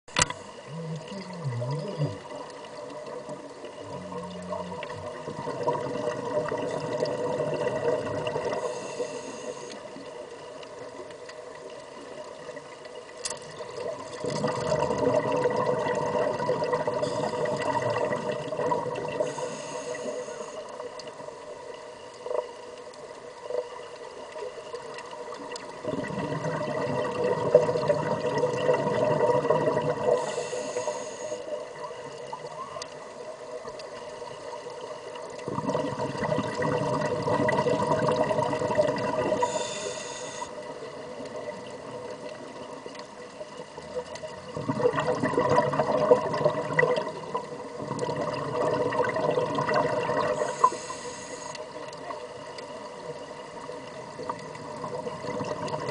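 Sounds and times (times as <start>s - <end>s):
underwater bubbling of escaping air: 0.1s - 10.1s, 13.4s - 20.3s, 25.3s - 31.0s, 35.2s - 42.8s, 43.6s - 51.4s, 53.6s - 55.9s.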